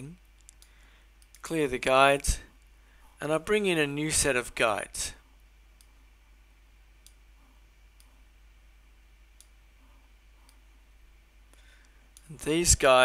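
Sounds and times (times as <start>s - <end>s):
computer mouse clicks: 0.4s - 1.4s, 7.0s - 7.3s, 7.9s - 8.2s, 9.4s - 9.6s, 10.4s - 10.7s.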